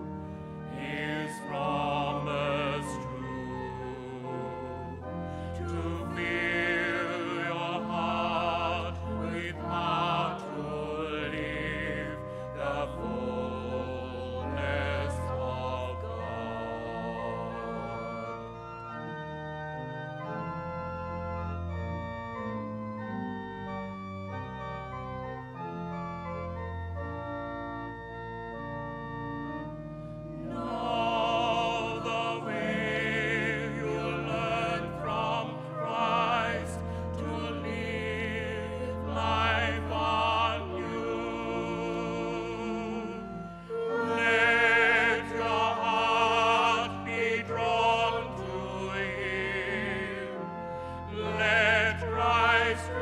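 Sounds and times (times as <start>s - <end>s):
person singing a hymn with vibrato: 0.0s - 18.9s, 30.3s - 53.0s
organ playing: 0.0s - 53.0s.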